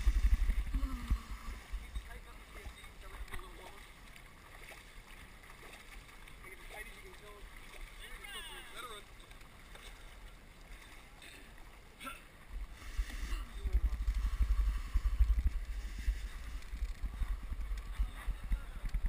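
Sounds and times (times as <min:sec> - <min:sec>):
wind buffeting microphone: 0:00.0 - 0:02.4, 0:13.0 - 0:19.0.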